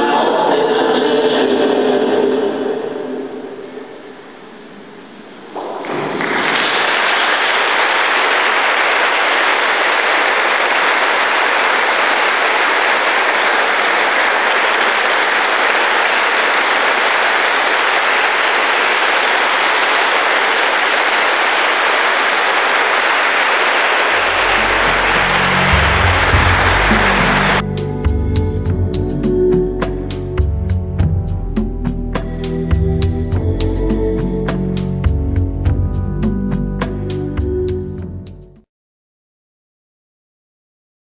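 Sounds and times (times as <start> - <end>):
audience applauding: 5.6 - 27.6
music: 24.2 - 38.6.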